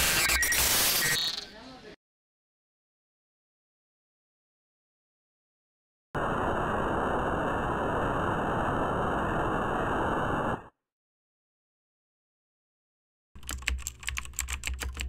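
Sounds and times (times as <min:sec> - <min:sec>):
television static hiss: 0:06.2 - 0:10.7
computer keyboard typing: 0:13.4 - 0:15.0.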